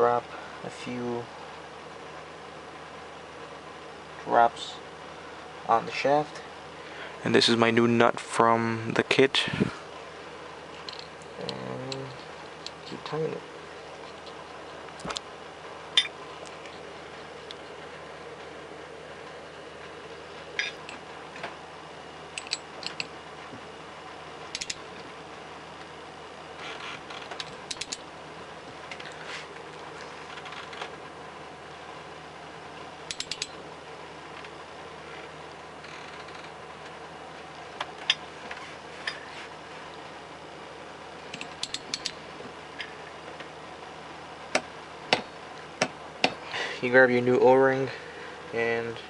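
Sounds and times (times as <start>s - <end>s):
steady low hum: 0.0s - 49.0s
ratcheting wrench clicks: 22.4s - 23.1s, 24.5s - 24.8s, 33.1s - 33.6s, 41.3s - 42.2s.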